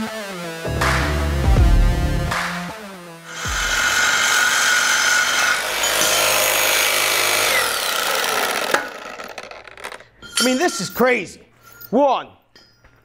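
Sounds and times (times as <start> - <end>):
reciprocating saw cutting steel: 3.3 - 9.7.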